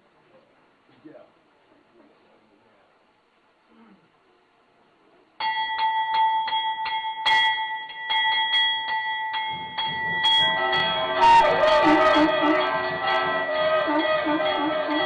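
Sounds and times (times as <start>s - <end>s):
metal bell rung by hand: 5.4s - 15.0s
ringing tones: 5.4s - 15.0s.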